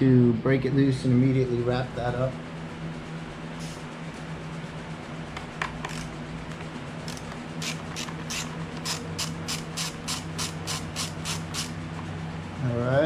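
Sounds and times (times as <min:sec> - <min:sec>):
steady low hum: 0:00.0 - 0:13.0
ratcheting driver clicking: 0:05.6 - 0:06.2, 0:07.0 - 0:11.8.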